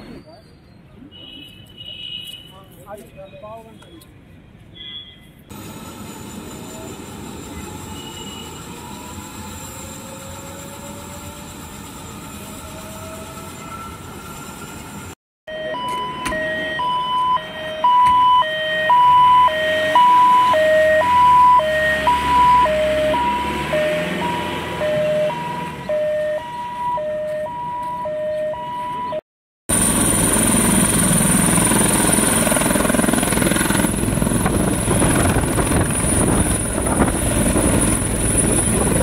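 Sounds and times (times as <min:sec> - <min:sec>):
ambulance siren hi-lo wail: 0:06.5 - 0:29.2.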